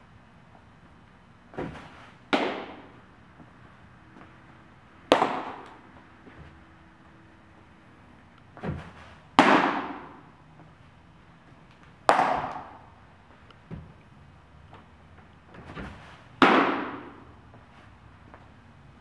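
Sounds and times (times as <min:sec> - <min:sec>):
dull thud: 0:01.5 - 0:02.8
baseballs popping into a mitt: 0:01.6 - 0:02.9, 0:05.1 - 0:05.8, 0:11.7 - 0:12.9, 0:15.7 - 0:17.3.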